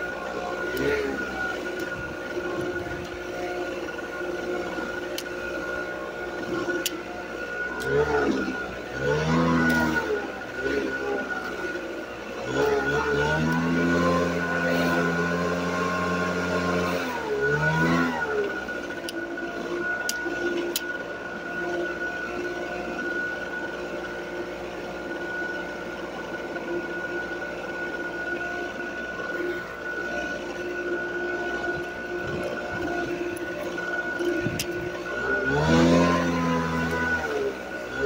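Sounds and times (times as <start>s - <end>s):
leaf blower engine revving and idling: 0.0s - 38.0s.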